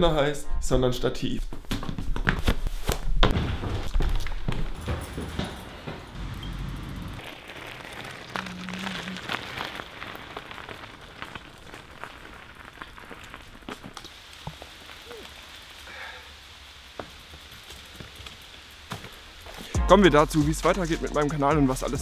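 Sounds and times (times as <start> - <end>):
bicycle tyres crunching on gravel: 3.1 - 19.8.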